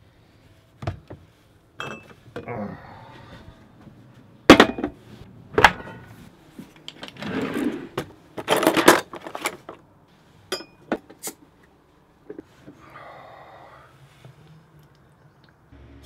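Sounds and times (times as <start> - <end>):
drawer sliding open: 7.0 - 9.6
metal utensils clattering: 8.4 - 9.7.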